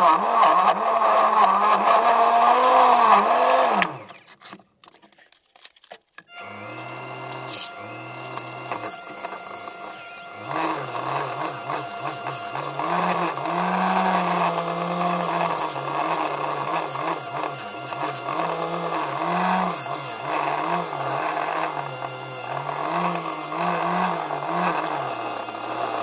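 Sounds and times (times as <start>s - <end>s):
wood lathe motor whine: 0.0s - 4.2s, 6.3s - 26.0s
sandpaper hissing on spinning wood: 6.9s - 26.0s.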